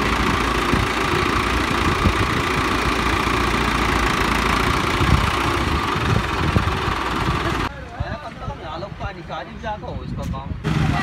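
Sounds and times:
tractor diesel engine running: 0.0s - 7.7s, 10.6s - 11.0s.

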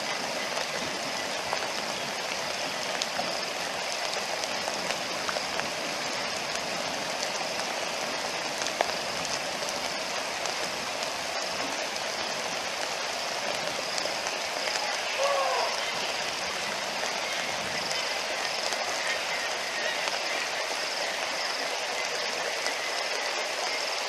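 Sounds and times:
rain falling on water: 0.0s - 24.0s
wavering call: 14.9s - 16.4s.

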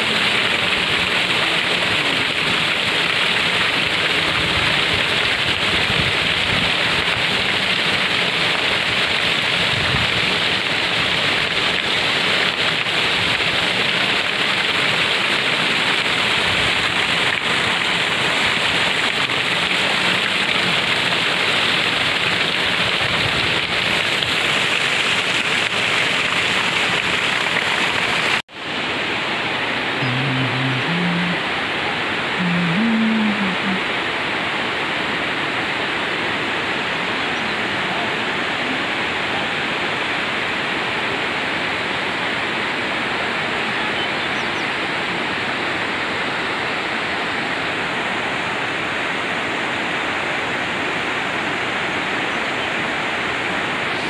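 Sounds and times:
waterfall rushing onto boulders: 0.0s - 54.0s.

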